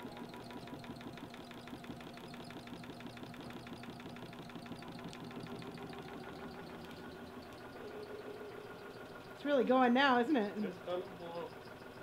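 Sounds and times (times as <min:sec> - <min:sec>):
honey extractor motor hum: 0:00.0 - 0:12.0
fast even ticking: 0:00.1 - 0:07.8.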